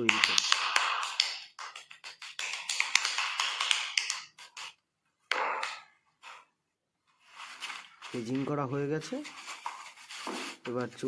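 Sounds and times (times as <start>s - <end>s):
hands slapping clay: 0.0s - 5.9s.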